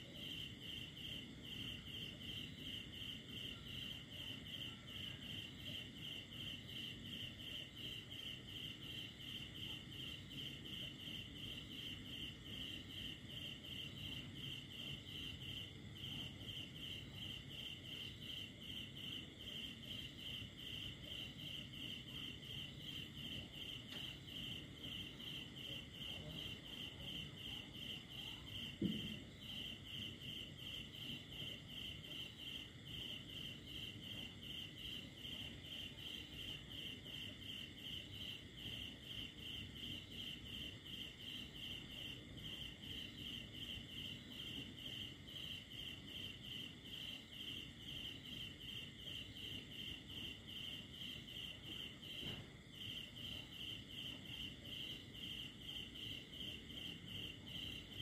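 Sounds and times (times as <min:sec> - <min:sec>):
crickets chirping: 0:00.0 - 0:58.0
faint continuous trill: 0:00.0 - 0:58.0
low thump: 0:28.8 - 0:29.2.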